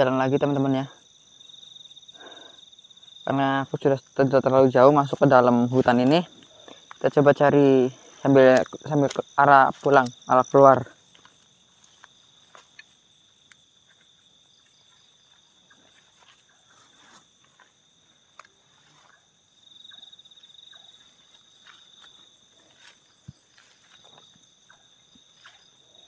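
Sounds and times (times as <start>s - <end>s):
crickets and insects trilling: 0.0s - 26.0s
footsteps through grass: 5.0s - 13.1s, 13.7s - 19.3s, 20.4s - 26.0s.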